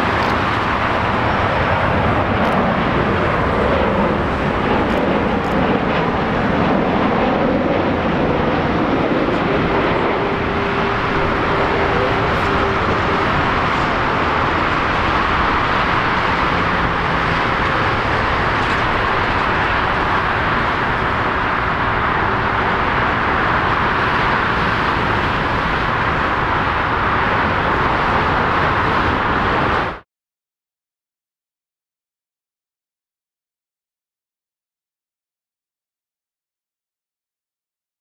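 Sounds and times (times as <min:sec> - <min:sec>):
distant jet roar: 0:00.0 - 0:30.0.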